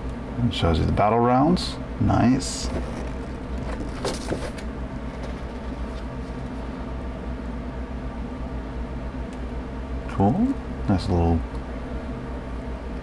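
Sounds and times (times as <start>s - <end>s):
low hum: 0.0s - 13.0s
paper booklet rustling: 2.6s - 6.7s.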